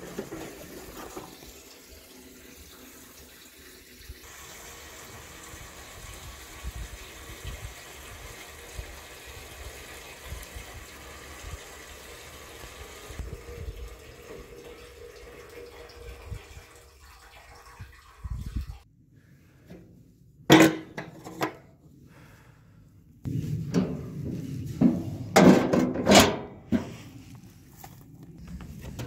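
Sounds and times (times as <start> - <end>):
fuel pouring into tank: 0.0 - 18.8.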